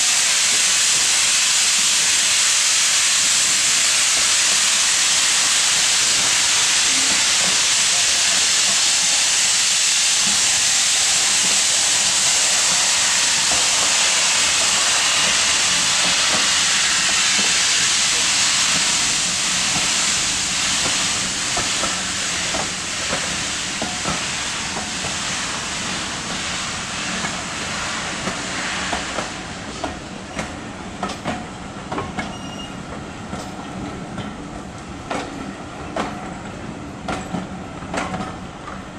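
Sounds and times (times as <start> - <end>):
steam hissing: 0.0 - 38.9
train wheels clicking over rail joints: 13.4 - 26.5, 27.1 - 38.9.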